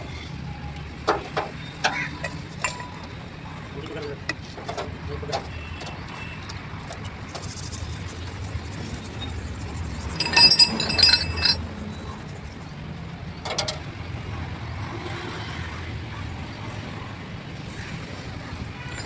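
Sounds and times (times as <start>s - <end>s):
metal parts clinking: 2.2s - 3.1s, 10.0s - 11.7s.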